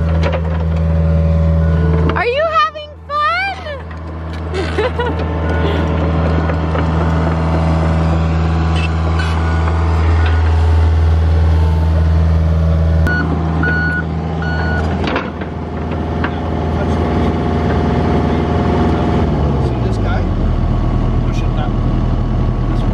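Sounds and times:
diesel engine running: 0.0 - 22.9
travel alarm beeps: 13.1 - 14.9.

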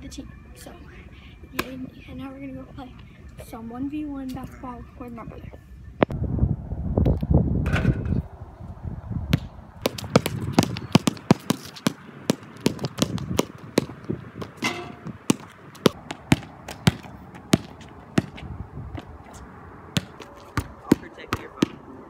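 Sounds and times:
basketball bouncing on hard court: 9.3 - 19.1, 20.0 - 21.8.

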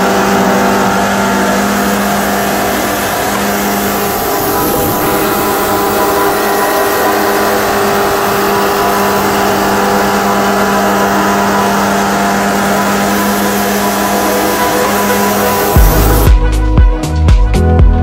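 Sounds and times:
bandsaw sawmill humming: 0.0 - 17.2.

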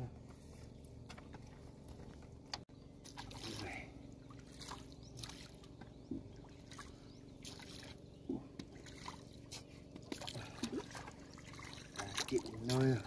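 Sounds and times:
steady low hum: 0.0 - 13.0
water sloshing around a boat: 0.0 - 13.0
water splashes: 3.0 - 13.0.

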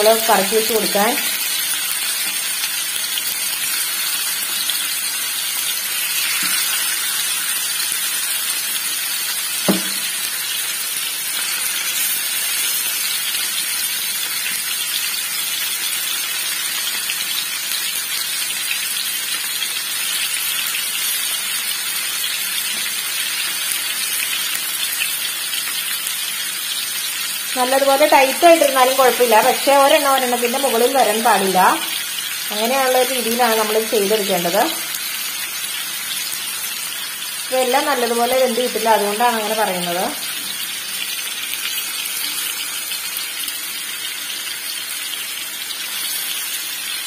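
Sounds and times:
chicken sizzling in hot oil: 0.0 - 47.0
short knock: 9.7 - 10.0.

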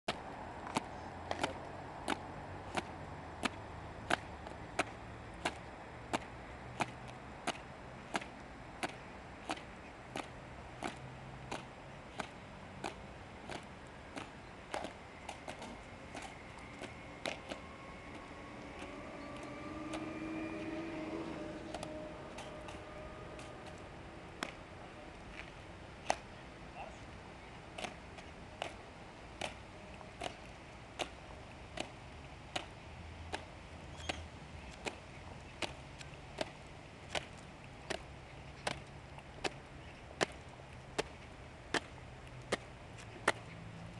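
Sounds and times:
drawn-out pitched sound: 12.9 - 26.3.

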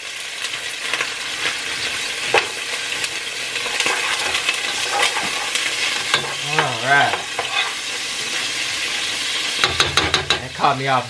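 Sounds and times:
vegetables sizzling in hot oil: 0.0 - 11.0
spoon stirring in a pot: 1.8 - 10.5.

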